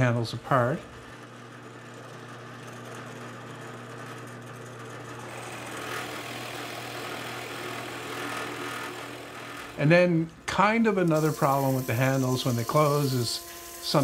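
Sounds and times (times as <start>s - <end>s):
drill press motor hum: 0.4s - 14.0s
drill bit cutting wood: 5.2s - 9.9s, 10.9s - 14.0s.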